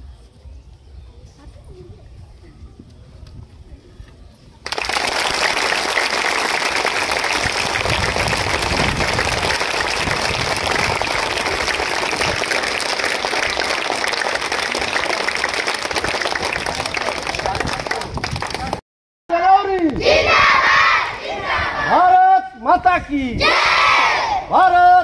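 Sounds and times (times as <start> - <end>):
crowd of children clapping: 4.6 - 18.8.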